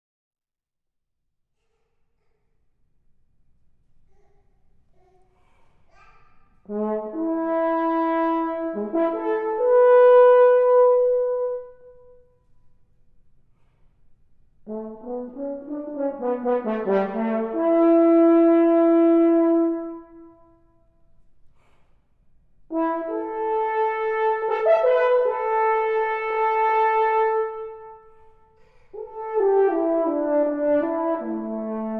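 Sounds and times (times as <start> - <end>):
solo french horn: 6.7 - 12.2, 14.6 - 20.7, 22.7 - 28.2, 28.9 - 31.9.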